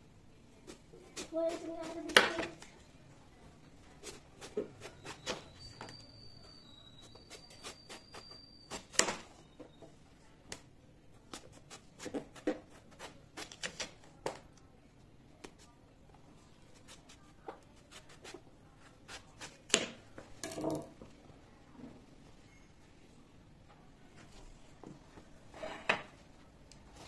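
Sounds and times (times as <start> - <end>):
knife scraping vegetable skin: 4.0 - 5.6, 7.0 - 9.2, 11.3 - 14.0, 16.7 - 19.8
faint high whine: 5.0 - 10.0, 22.4 - 23.6
objects knocking when set down: 20.4 - 21.0.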